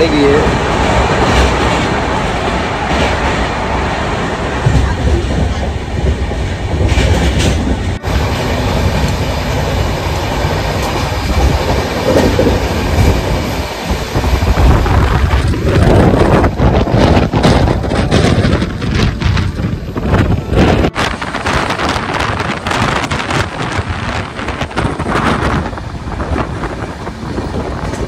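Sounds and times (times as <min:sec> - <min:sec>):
train rumbling inside carriage: 0:00.0 - 0:28.0.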